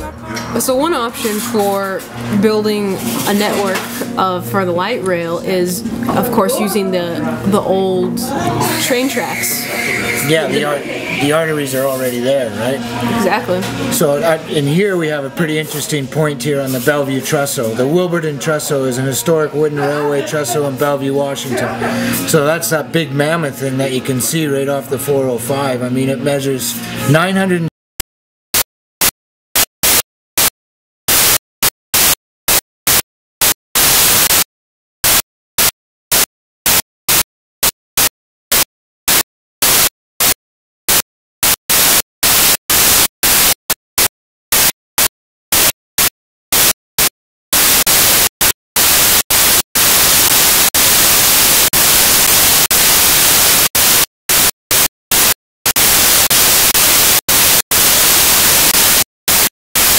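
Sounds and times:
harsh digital static bursts: 0:08.6 - 0:14.8, 0:28.6 - 0:59.9.

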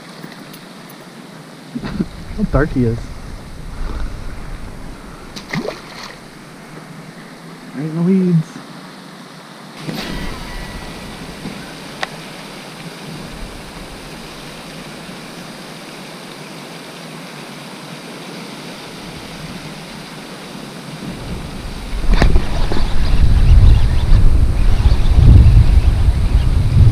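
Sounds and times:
steady outdoor hiss: 0:00.0 - 0:26.9
wind buffeting microphone: 0:01.8 - 0:07.6, 0:09.8 - 0:16.0, 0:21.0 - 0:26.9.

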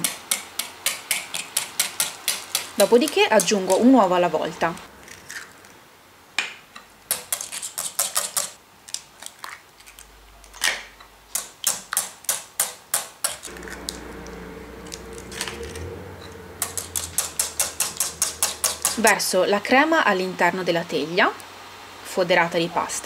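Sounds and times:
whisk ticking against ceramic bowl: 0:16.7 - 0:19.2.

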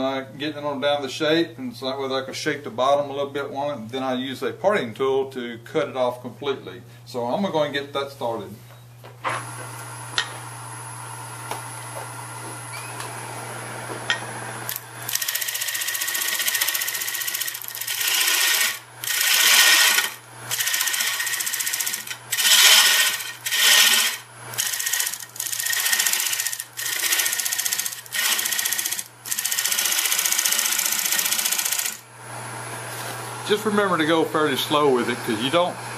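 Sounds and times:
lathe motor humming: 0:13.2 - 0:32.7
gouge cutting spinning wood: 0:14.7 - 0:32.0.

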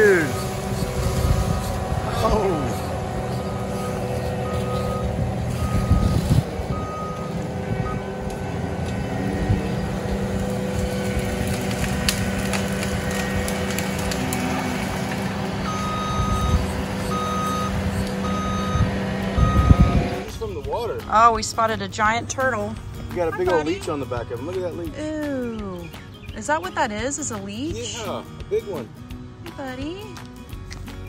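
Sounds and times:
diesel engine running: 0:00.0 - 0:31.0
reversing alarm beeps: 0:03.5 - 0:08.0, 0:15.6 - 0:20.1
wood cracking: 0:09.8 - 0:17.0.

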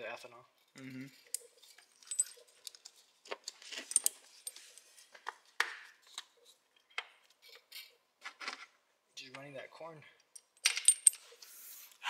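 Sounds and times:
small metal parts clinking: 0:01.2 - 0:04.9, 0:10.2 - 0:11.4.

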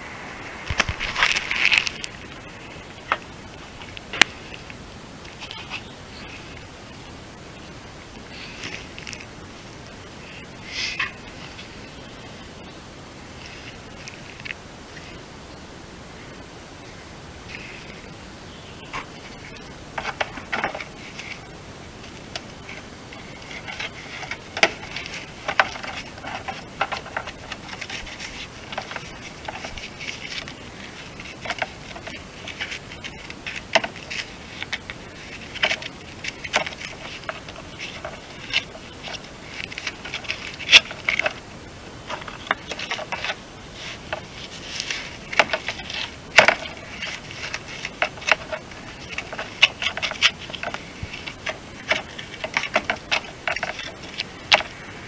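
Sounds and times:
handling clicks and scrapes: 0:00.6 - 0:06.7, 0:18.9 - 0:55.0.

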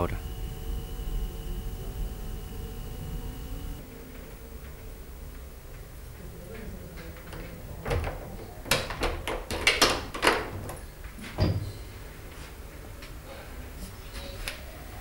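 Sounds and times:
door knock opening: 0:07.8 - 0:10.8.

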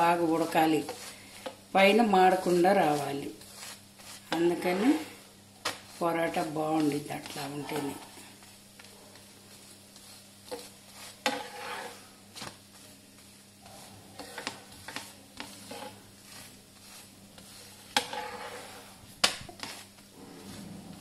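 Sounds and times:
oil sizzling: 0:00.0 - 0:21.0
utensil knocking and scraping pan: 0:05.7 - 0:08.1, 0:10.5 - 0:12.5, 0:14.2 - 0:16.5, 0:17.4 - 0:21.0.

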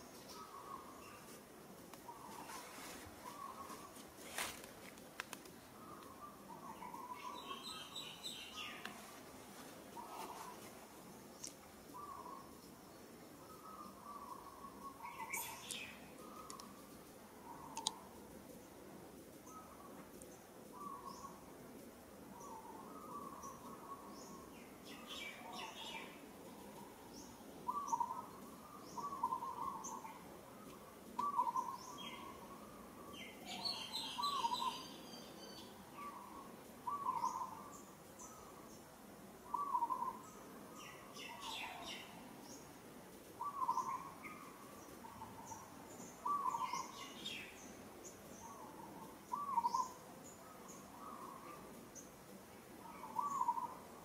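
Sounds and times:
high bird twittering: 0:33.5 - 0:36.3.

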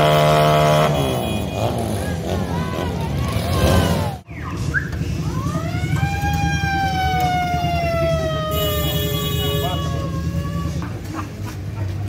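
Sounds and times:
siren wailing: 0:03.5 - 0:10.8.

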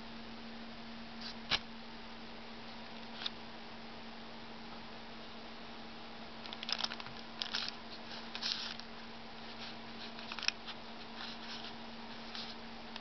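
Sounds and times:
steady low hum: 0:00.0 - 0:13.0
baking paper crinkling: 0:06.5 - 0:12.6.

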